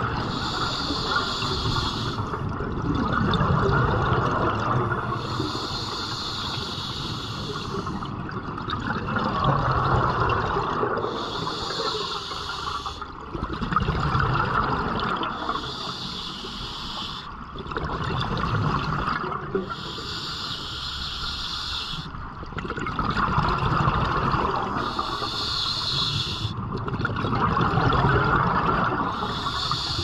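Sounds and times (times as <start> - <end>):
exhaled bubbles gurgling: 0.0 - 30.0
regulator hiss on inhale: 0.2 - 2.4, 5.1 - 8.1, 11.0 - 13.1, 15.3 - 17.4, 19.7 - 22.1, 24.7 - 26.6, 29.1 - 30.0.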